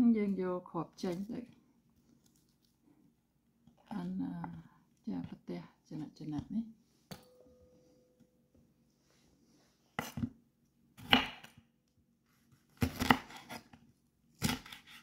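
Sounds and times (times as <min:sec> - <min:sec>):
knife chopping on a wooden board: 0:11.0 - 0:11.6, 0:12.8 - 0:13.6, 0:14.4 - 0:15.0.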